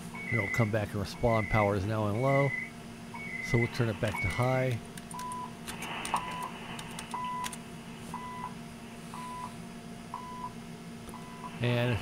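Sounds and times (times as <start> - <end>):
radio time signal beeps: 0.2 - 4.4, 8.2 - 8.5, 9.2 - 9.5.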